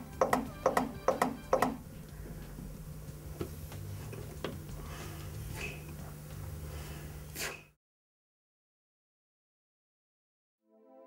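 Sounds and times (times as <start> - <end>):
soft breath puffs: 3.9 - 7.8.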